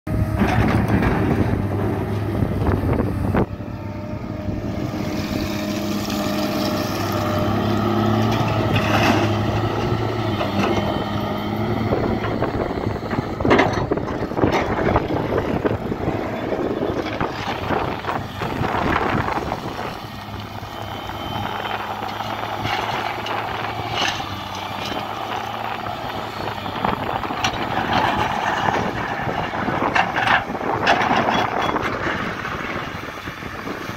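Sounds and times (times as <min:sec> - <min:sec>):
excavator diesel engine running: 0:00.1 - 0:33.9
dirt and stones scraping: 0:04.5 - 0:33.8.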